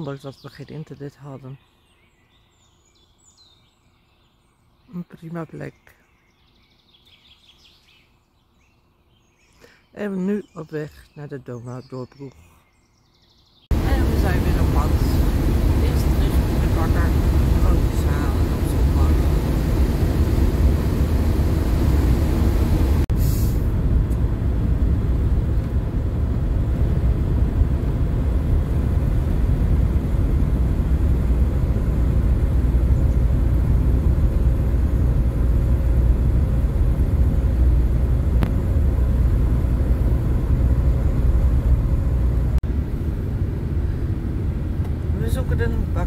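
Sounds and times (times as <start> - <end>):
engine and tyre rumble: 13.7 - 46.0
brief hiss: 23.1 - 23.8.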